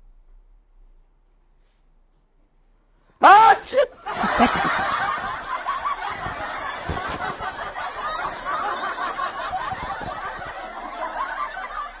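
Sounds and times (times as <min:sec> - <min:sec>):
people laughing together: 0:03.2 - 0:12.0.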